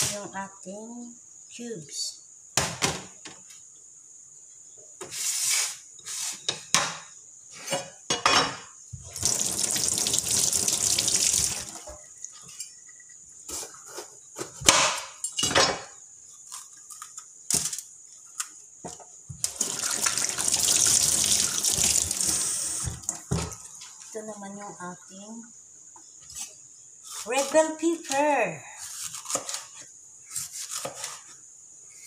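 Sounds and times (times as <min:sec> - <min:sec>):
water running from a tap: 0:09.0 - 0:12.0, 0:19.4 - 0:23.3.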